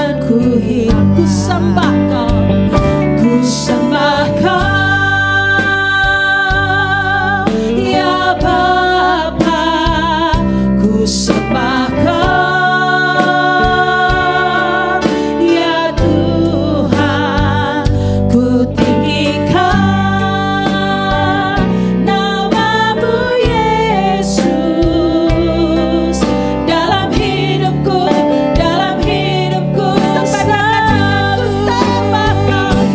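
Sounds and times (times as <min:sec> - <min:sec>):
band playing: 0:00.4 - 0:10.6, 0:29.6 - 0:32.9
woman singing long notes: 0:30.0 - 0:32.9.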